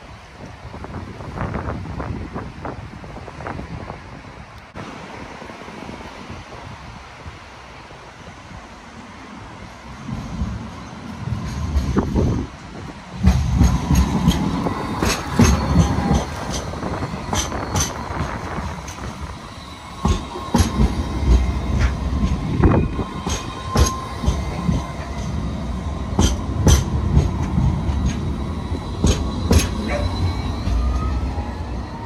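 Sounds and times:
tram wheels clacking over track: 9.8s - 32.0s
wheel squeal: 14.8s - 25.3s, 27.9s - 32.0s.

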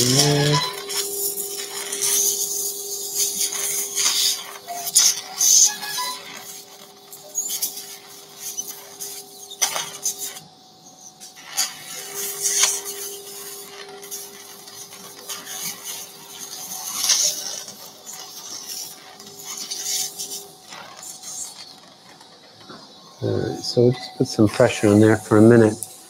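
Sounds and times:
steady low hum: 0.0s - 26.0s
suction hissing and slurping: 11.3s - 21.6s.

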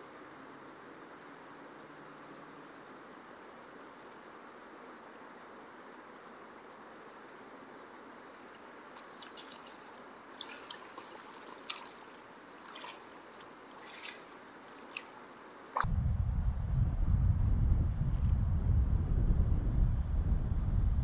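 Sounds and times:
faint steady hiss: 0.0s - 15.9s
water drips and light splashes: 8.5s - 15.8s
low wind rumble on microphone: 15.8s - 21.0s.

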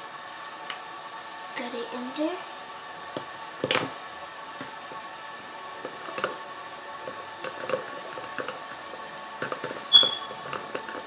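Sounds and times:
short high squeak: 9.9s - 10.4s.

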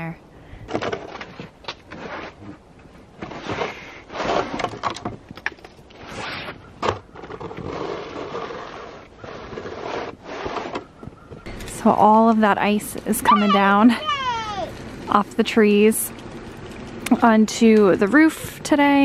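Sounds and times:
rake scraping snow off roof: 3.2s - 4.7s, 7.4s - 10.8s.

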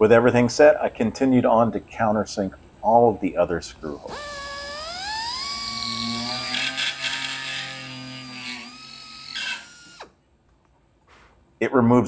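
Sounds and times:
air drill whining: 4.1s - 10.2s.

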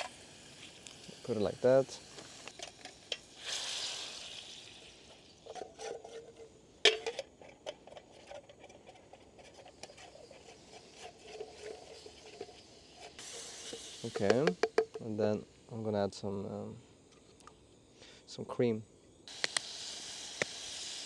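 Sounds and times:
short sizzle: 0.0s - 5.6s, 10.1s - 14.5s
spatula scraping metal pot: 5.4s - 14.4s.

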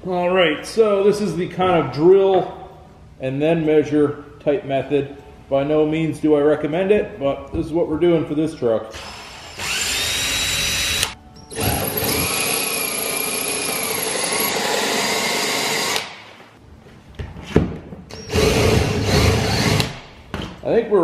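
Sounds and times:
cordless drill drilling into metal: 9.0s - 16.1s, 18.1s - 20.0s.

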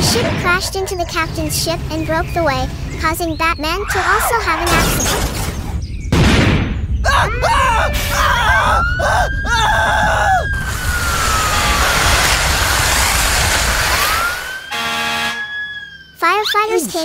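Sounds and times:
squeaky cartoon voices: 0.1s - 5.2s, 16.2s - 17.0s
fire engine siren wailing: 7.3s - 16.2s.

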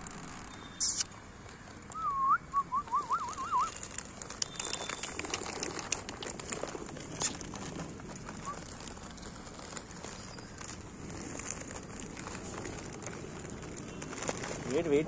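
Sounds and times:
person whistling warbling call: 2.0s - 3.7s.

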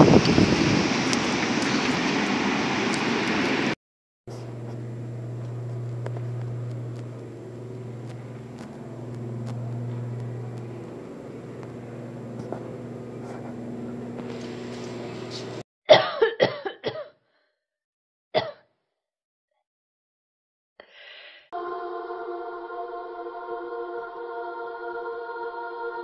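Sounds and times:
loud rush of noise: 0.0s - 3.8s
low mechanical hum: 4.3s - 15.6s.

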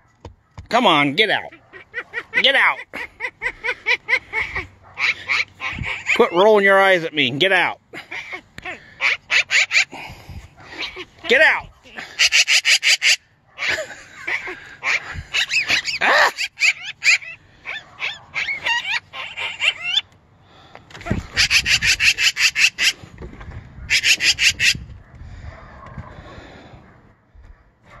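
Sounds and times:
magpie harsh rattling chatter: 1.4s - 7.1s, 8.0s - 10.1s, 10.7s - 20.0s, 21.0s - 23.0s, 23.9s - 24.8s
magpie squeaky gliding calls: 3.3s - 6.4s, 8.2s - 9.9s, 14.8s - 20.1s, 21.4s - 23.0s, 23.9s - 24.8s.

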